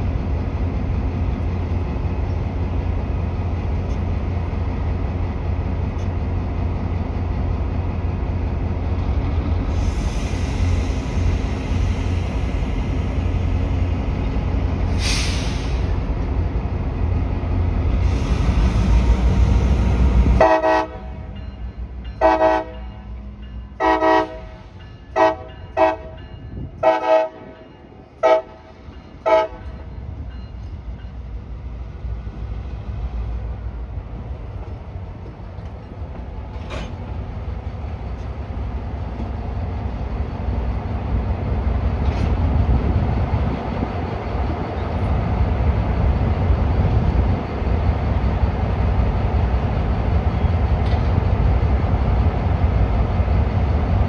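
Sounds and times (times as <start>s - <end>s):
locomotive horn blasts: 20.4s - 21.3s, 22.2s - 23.1s, 23.8s - 26.2s, 26.8s - 27.6s, 28.2s - 29.9s.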